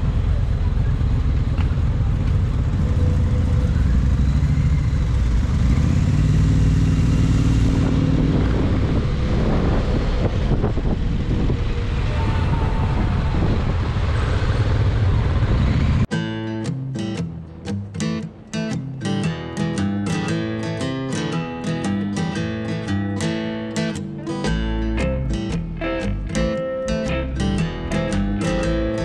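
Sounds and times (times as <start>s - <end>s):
motorcycle engine running: 0.0s - 16.1s
road and wind noise: 0.0s - 16.1s, 16.7s - 29.0s.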